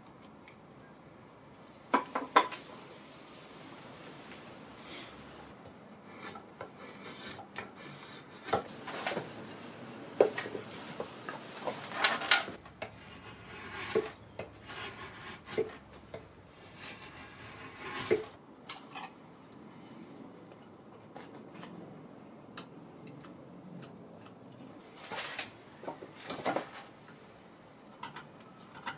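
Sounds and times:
drawknife rasping on wood: 0:05.9 - 0:08.6, 0:12.9 - 0:15.8, 0:16.8 - 0:18.3.

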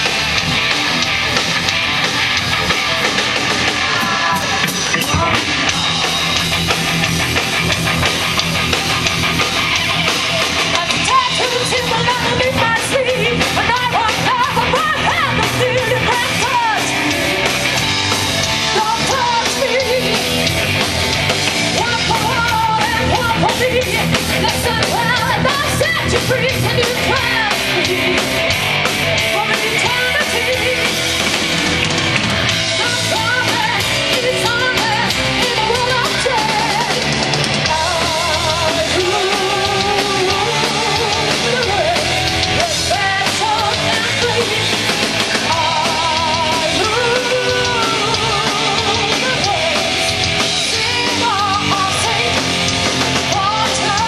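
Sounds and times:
drum kit: 0:00.0 - 0:54.0
electric guitars: 0:00.0 - 0:54.0
person singing: 0:09.7 - 0:17.6, 0:18.6 - 0:20.5, 0:21.8 - 0:28.2, 0:29.2 - 0:31.0, 0:32.7 - 0:52.6, 0:53.2 - 0:54.0.

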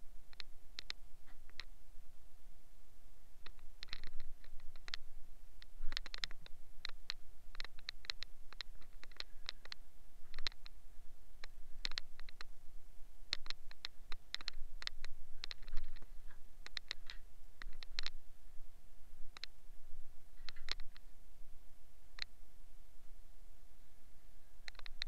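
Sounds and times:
faint steady tone: 0:00.0 - 0:25.0
light clicks taps and scratches: 0:00.3 - 0:01.7, 0:03.4 - 0:05.0, 0:05.6 - 0:10.8, 0:11.4 - 0:12.5, 0:13.3 - 0:18.2, 0:20.4 - 0:21.0, 0:24.6 - 0:25.0.

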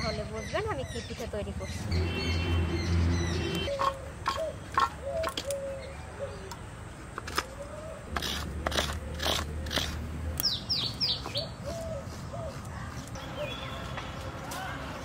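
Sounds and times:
birds calling: 0:00.0 - 0:14.9
coconut flesh being scraped: 0:08.1 - 0:10.1.

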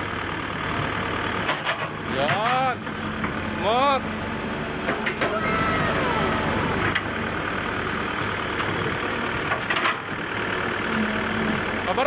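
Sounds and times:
excavator diesel engine running: 0:00.0 - 0:12.0
falling hydraulic whine: 0:05.2 - 0:07.1.

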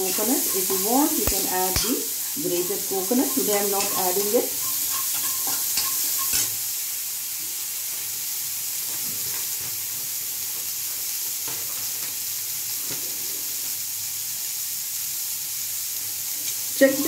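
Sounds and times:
metal spoon scraping pan: 0:00.0 - 0:06.6
chickpeas sizzling in oil: 0:00.0 - 0:17.0.

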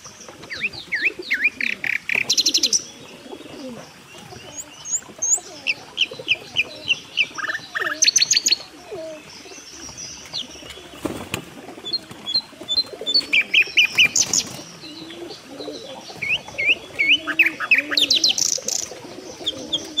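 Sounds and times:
birds chirping rapidly: 0:00.0 - 0:20.0
pigeons cooing: 0:00.0 - 0:20.0.

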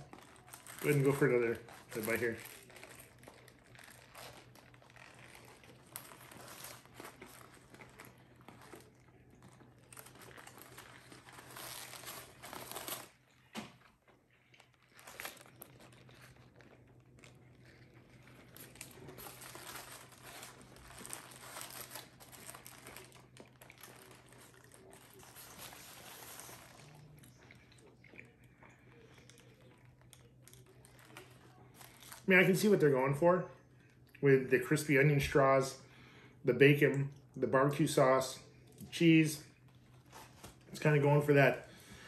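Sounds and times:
paper wrapping crinkling: 0:00.0 - 0:32.9.

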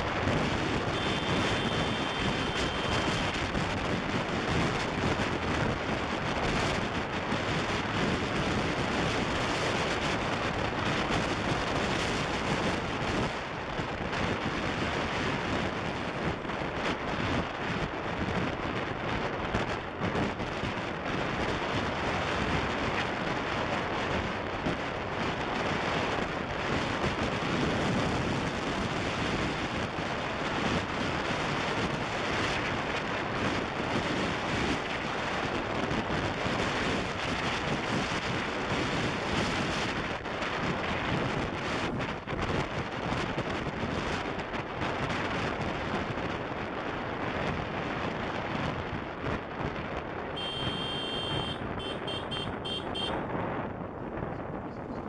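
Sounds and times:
motorbike engine: 0:00.0 - 0:05.4, 0:50.4 - 0:53.2
wind buffeting microphone: 0:00.0 - 0:50.5, 0:51.4 - 0:55.0
road noise: 0:00.0 - 0:55.0.

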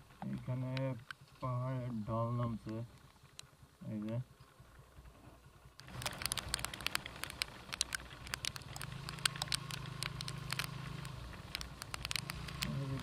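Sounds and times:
motorcycle engine hum: 0:00.0 - 0:13.0
raindrops tapping on microphone: 0:00.0 - 0:13.0.

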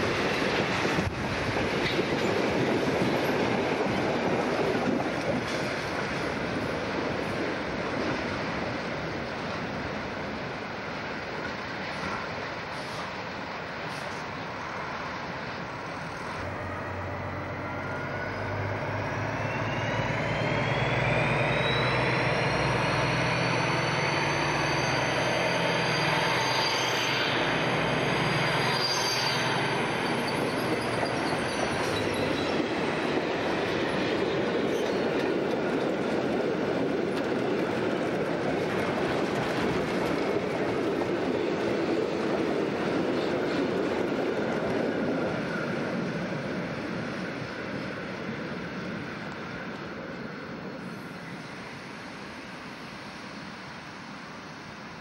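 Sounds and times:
diesel locomotive engine hum: 0:00.0 - 0:55.0
train wagons rumbling past: 0:00.0 - 0:55.0.

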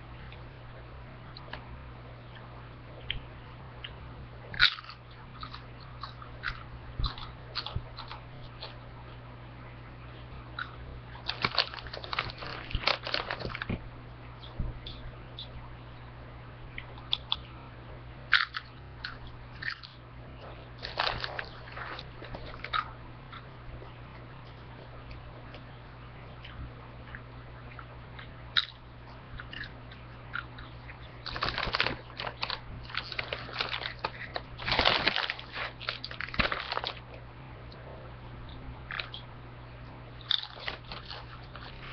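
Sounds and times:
person crunching chips: 0:04.6 - 0:08.8, 0:10.6 - 0:13.8, 0:18.3 - 0:20.0, 0:20.8 - 0:23.4, 0:30.3 - 0:37.1, 0:40.2 - 0:41.9.

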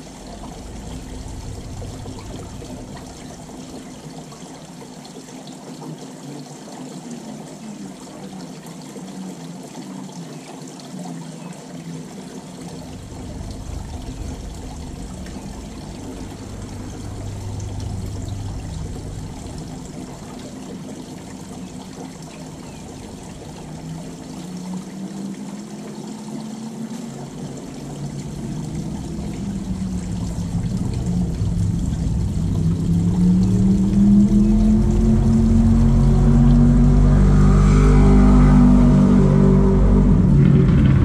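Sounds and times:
water trickling and pouring: 0:00.0 - 0:40.6
motor humming: 0:12.8 - 0:24.5.

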